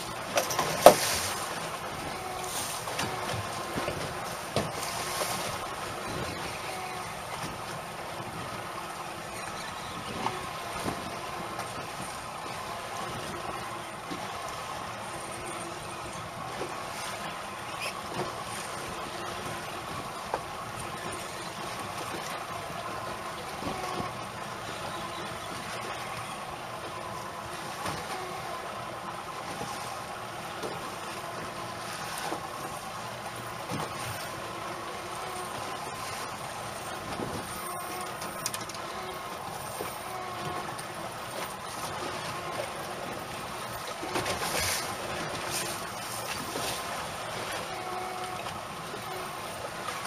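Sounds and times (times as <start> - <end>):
outboard motor idling: 0.0 - 50.0
water noise: 0.0 - 50.0
wind: 0.0 - 50.0.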